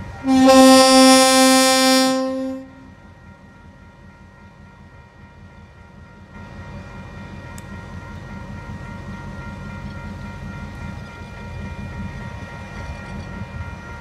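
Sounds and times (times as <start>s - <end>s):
train horn blast: 0.0s - 2.9s
diesel locomotives rumbling: 0.0s - 14.0s.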